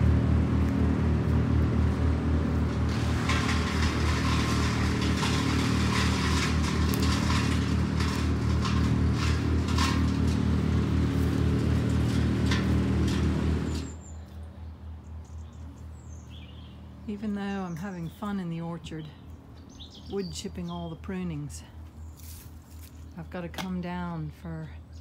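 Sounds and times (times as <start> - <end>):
wood chipper engine drone: 0.0 - 20.1
branches cracking in chipper: 0.5 - 14.0.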